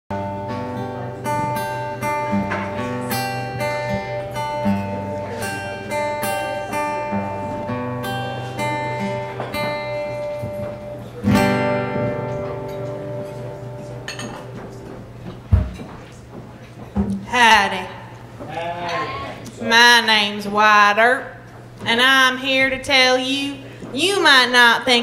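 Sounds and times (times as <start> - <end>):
strummed guitar chord: 0.1 - 15.7
plucked acoustic guitar: 0.1 - 19.4.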